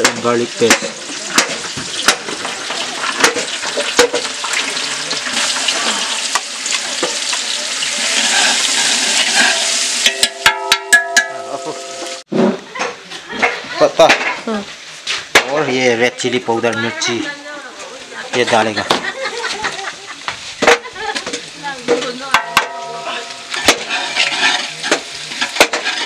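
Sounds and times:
paste sizzling in oil: 0:00.0 - 0:12.3, 0:14.1 - 0:26.0
ringing metallic taps: 0:10.0 - 0:12.2.

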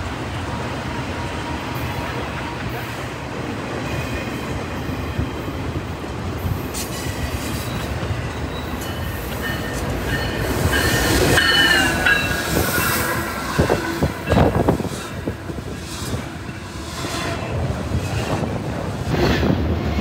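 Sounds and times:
locomotive passing: 0:00.0 - 0:20.0
train wheels rumbling on rail: 0:00.0 - 0:20.0
wheel squeal: 0:06.9 - 0:14.5.

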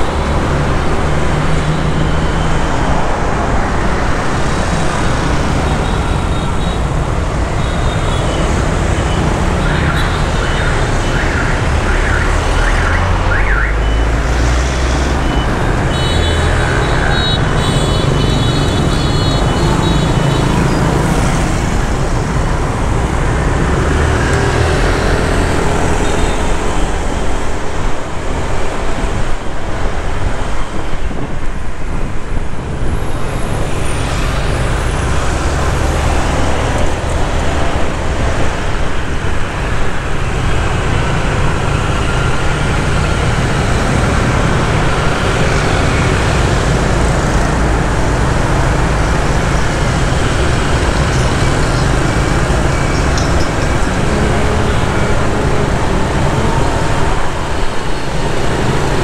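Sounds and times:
street traffic noise: 0:00.0 - 0:59.0.

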